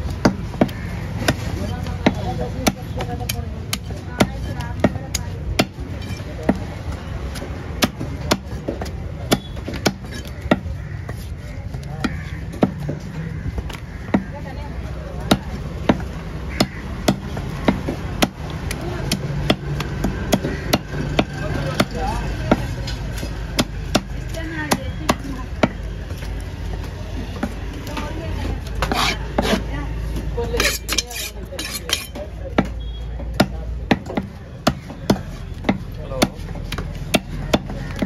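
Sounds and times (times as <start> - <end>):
knife chopping on wooden block: 0.2 - 6.7, 28.7 - 29.7, 30.6 - 38.0.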